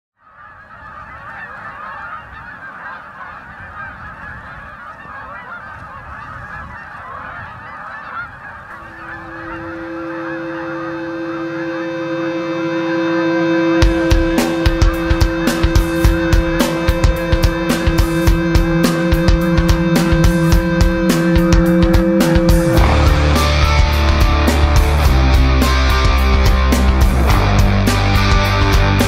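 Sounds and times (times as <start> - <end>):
geese honking: 0.2 - 29.0
music with held chord: 8.7 - 29.0
drums and guitar: 9.2 - 29.0.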